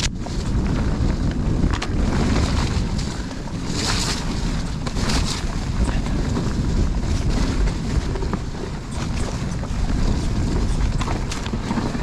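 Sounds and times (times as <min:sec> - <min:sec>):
bike clattering over bumps: 0:00.0 - 0:12.0
wind buffeting microphone: 0:00.0 - 0:12.0
tyres rolling over dirt: 0:00.2 - 0:12.0.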